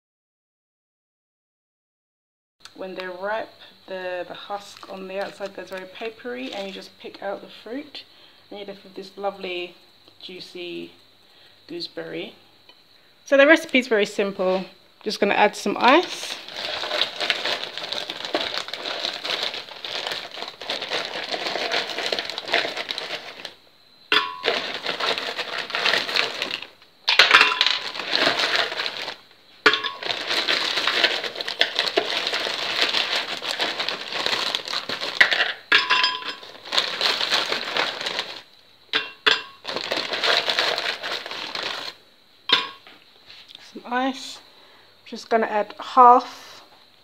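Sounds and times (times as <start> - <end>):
plastic bag crinkling: 4.5 - 6.9, 15.8 - 38.6, 39.2 - 42.8
ice clinking on glass: 24.1 - 25.1, 27.1 - 28.4, 29.7 - 31.0, 35.2 - 37.2, 38.9 - 39.7, 42.5 - 42.8.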